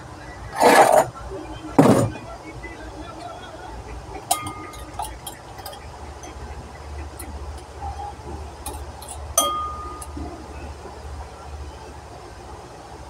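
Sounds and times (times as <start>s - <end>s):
low hum: 0.0s - 12.8s
spoon clinking against bowl: 4.3s - 6.4s, 7.2s - 10.2s.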